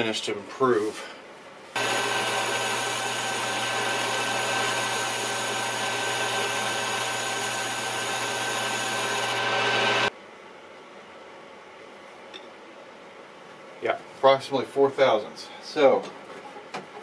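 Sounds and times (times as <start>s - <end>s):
lathe cutting metal: 1.8s - 10.1s.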